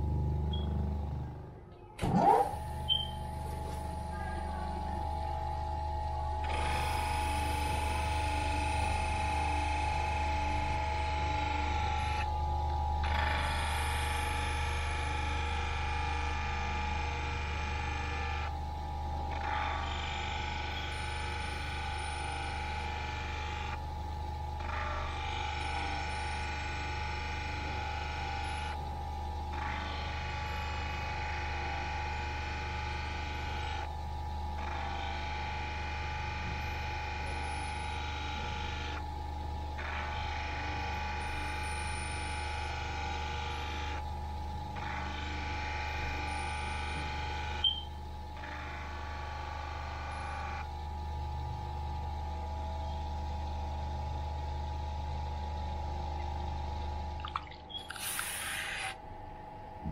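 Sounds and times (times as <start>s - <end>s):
crystal on wheel high whine: 56.5s - 59.9s.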